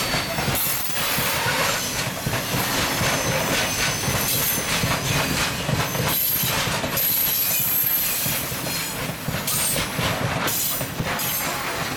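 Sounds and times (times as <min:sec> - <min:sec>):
high wheel squeal: 0:00.0 - 0:02.0, 0:02.6 - 0:04.8, 0:05.9 - 0:08.9
freight train wheels clattering: 0:00.0 - 0:11.9.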